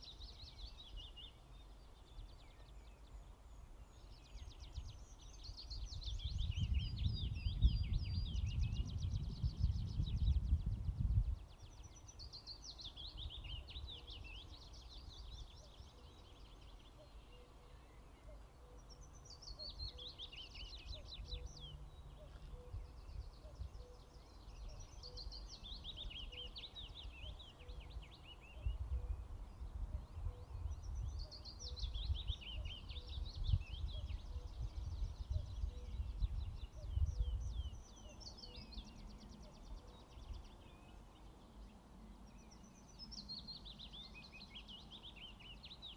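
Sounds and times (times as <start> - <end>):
songbird singing: 0.0 - 45.9
wind rumble on microphone: 3.8 - 16.5, 18.9 - 45.9.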